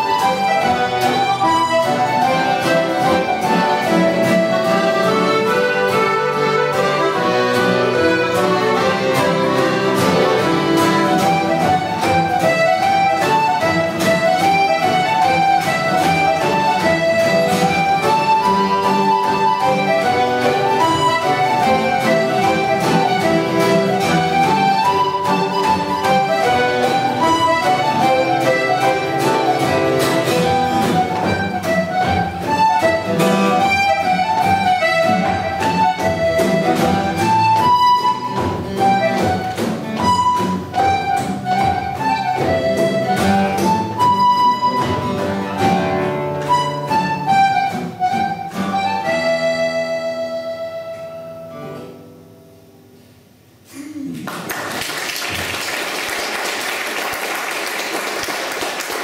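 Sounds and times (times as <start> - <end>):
acoustic guitar: 0.0 - 59.0
concertina: 0.0 - 59.0
audience applause: 54.1 - 59.0.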